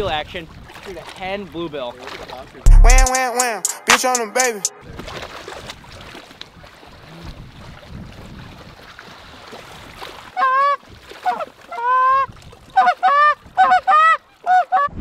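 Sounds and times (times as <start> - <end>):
geese honking: 12.8 - 14.9.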